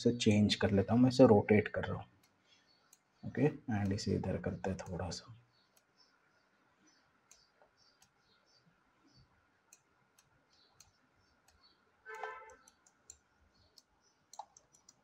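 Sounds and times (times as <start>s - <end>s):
computer mouse clicks: 9.7s - 11.6s, 12.5s - 15.0s.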